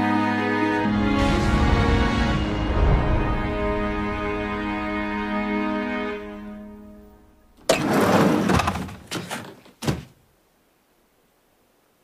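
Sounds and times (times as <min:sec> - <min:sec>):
sustained music: 0:00.0 - 0:07.6.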